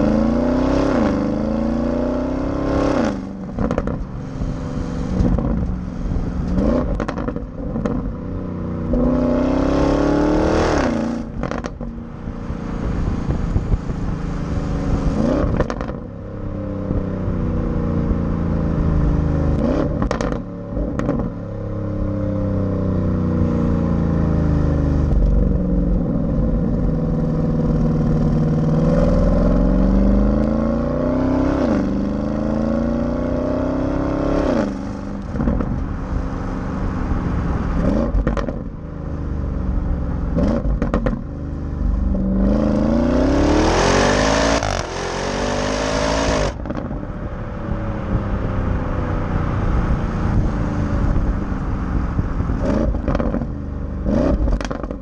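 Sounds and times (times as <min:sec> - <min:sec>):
car exhaust revving: 0:00.0 - 0:55.0
exhaust cracks: 0:37.8 - 0:38.8, 0:40.3 - 0:42.8, 0:51.1 - 0:55.0.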